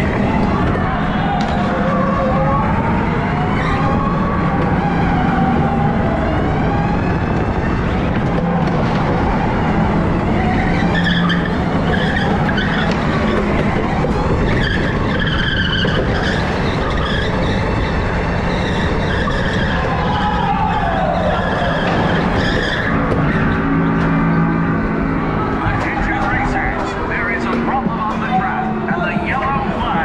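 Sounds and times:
wind and rolling noise: 0:00.0 - 0:30.0
tyres squealing: 0:09.7 - 0:30.0.

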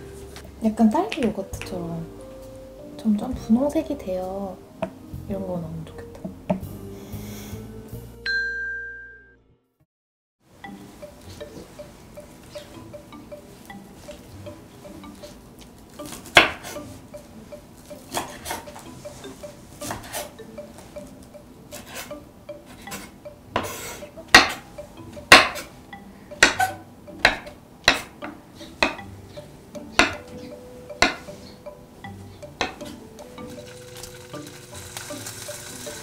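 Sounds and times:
knife chopping on wooden board: 0:16.3 - 0:16.8, 0:22.9 - 0:24.6, 0:26.4 - 0:29.0, 0:30.0 - 0:30.3, 0:31.0 - 0:31.3.

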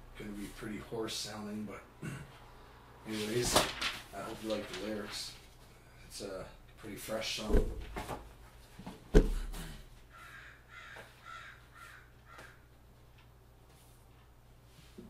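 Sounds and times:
sharp thump: 0:09.2 - 0:09.5.

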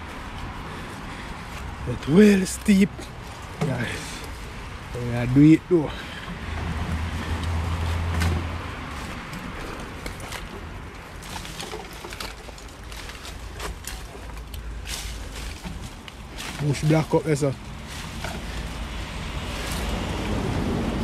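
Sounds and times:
footsteps in dry leaves: 0:06.8 - 0:21.0.

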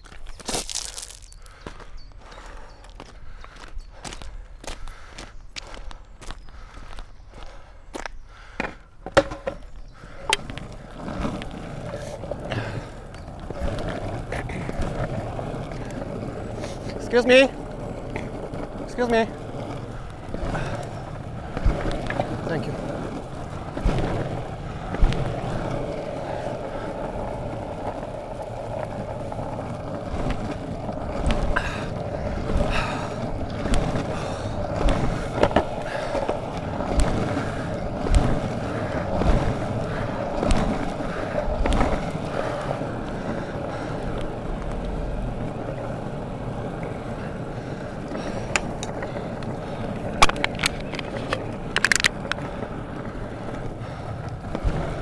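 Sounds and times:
foot pushing against ground: 0:00.0 - 0:01.9, 0:08.0 - 0:45.1
longboard wheels rolling on tarmac: 0:00.0 - 0:55.0.

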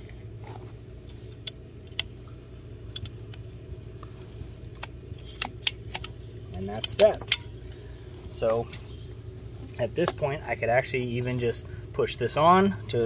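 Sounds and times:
low hum: 0:00.0 - 0:13.0
ratcheting pipe cutter clicking: 0:04.8 - 0:07.8.

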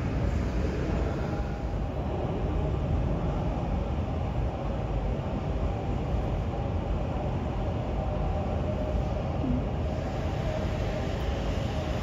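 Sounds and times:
faint steady hum: 0:00.0 - 0:12.0
low machinery rumble: 0:00.0 - 0:12.0.

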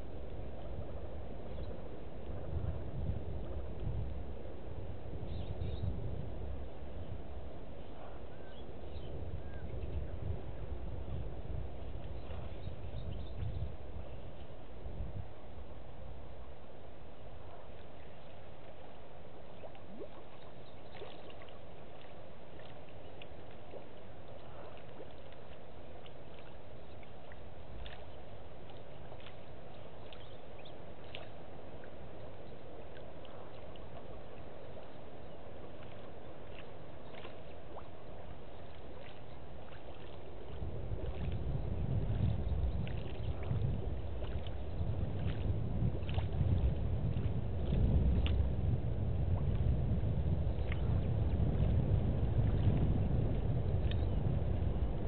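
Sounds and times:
wind buffeting microphone: 0:00.0 - 0:16.2, 0:40.0 - 0:55.0.

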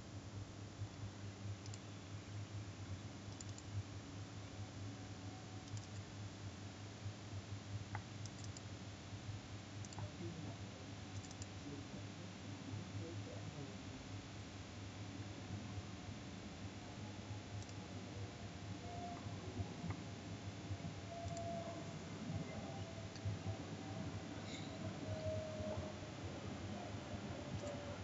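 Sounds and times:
faint low hum: 0:00.0 - 0:28.0
computer mouse clicking: 0:01.6 - 0:01.9, 0:03.3 - 0:03.7, 0:05.6 - 0:06.0, 0:08.0 - 0:08.7, 0:09.8 - 0:10.1, 0:11.1 - 0:11.6, 0:17.6 - 0:17.8, 0:21.2 - 0:21.5, 0:27.5 - 0:27.8.

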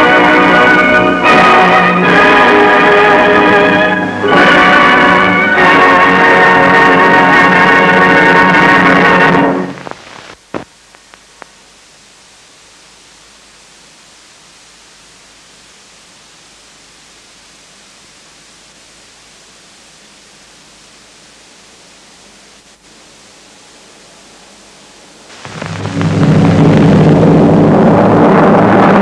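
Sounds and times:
tape hiss: 0:00.0 - 0:29.0
loud deep swell: 0:25.4 - 0:29.0.

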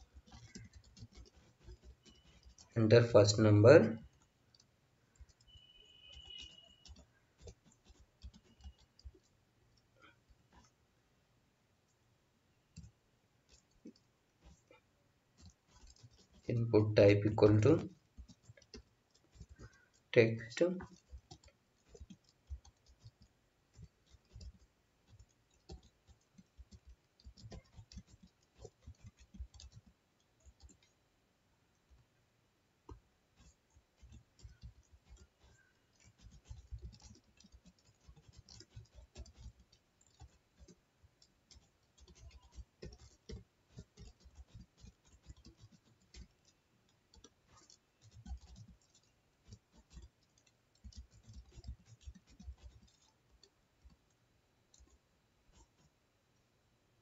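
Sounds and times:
faint keyboard typing: 0:00.0 - 0:57.0.

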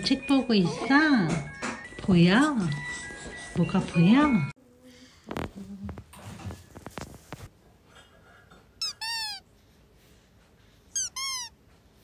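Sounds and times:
rustling: 0:05.3 - 0:07.5
high-pitched squeaks dipping: 0:08.8 - 0:09.4, 0:11.0 - 0:11.6.

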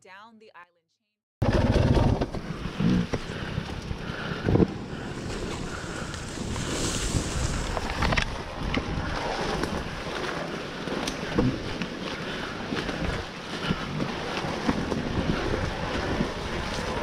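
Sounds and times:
wind noise on microphone: 0:01.4 - 0:10.3, 0:12.4 - 0:17.0.

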